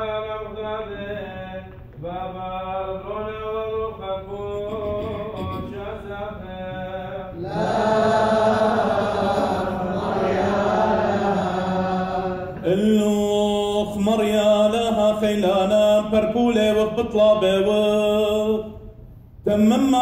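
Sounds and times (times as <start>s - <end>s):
several voices chanting: 7.3s - 12.8s.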